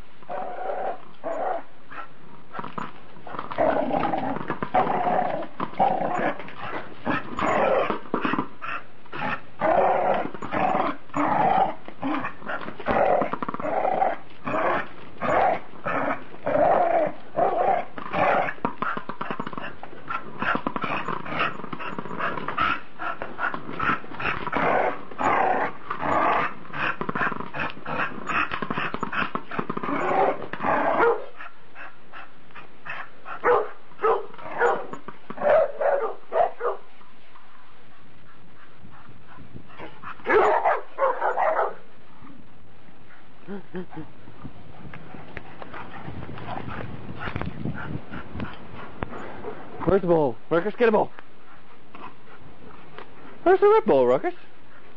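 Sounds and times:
dogs barking and growling: 0.3 - 36.9, 38.2 - 42.4.

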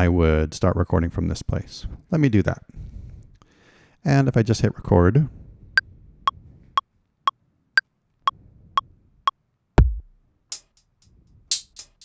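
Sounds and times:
electronic drum hits: 9.8 - 10.1
deep kick drum: 9.8 - 10.2.

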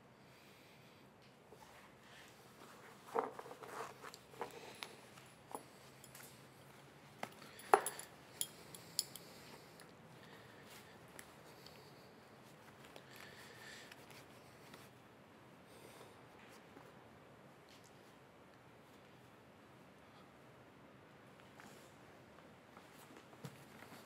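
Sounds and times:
denim rustling: 1.6 - 7.6
metal belt buckle clinking: 5.4 - 6.6, 7.2 - 9.6.

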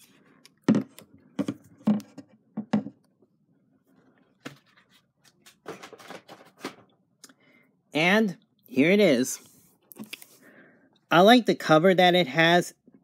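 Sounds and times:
radio and box handling knocks: 0.6 - 3.0.

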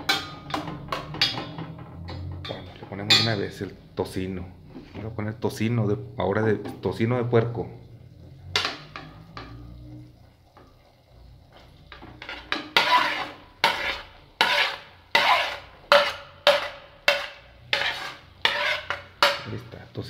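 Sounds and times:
spoon knocking on plate and pot: 0.0 - 3.5, 12.2 - 19.6.

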